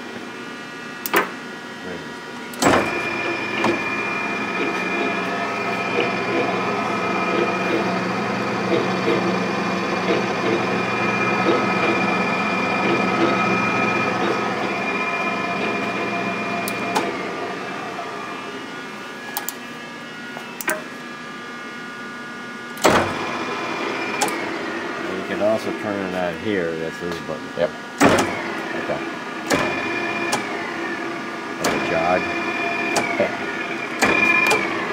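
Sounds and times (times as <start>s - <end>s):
lathe control clicks: 1.0s - 1.4s, 15.6s - 17.2s, 19.4s - 19.6s, 20.6s - 20.9s, 24.2s - 24.5s, 29.4s - 30.5s, 31.6s - 32.1s, 32.9s - 33.3s, 34.0s - 34.8s
lathe motor humming: 1.7s - 34.9s.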